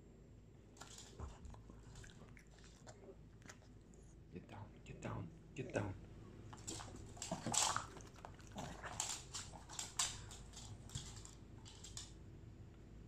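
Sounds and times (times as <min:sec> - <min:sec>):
dogs snuffling and huffing: 0:06.5 - 0:12.1.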